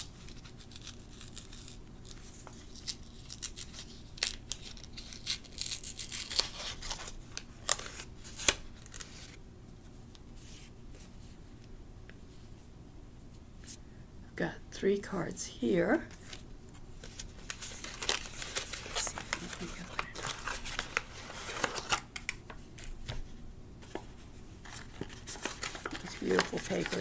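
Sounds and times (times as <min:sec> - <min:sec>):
paper wrapping rustling and crinkling: 0:00.0 - 0:09.4, 0:16.1 - 0:27.0.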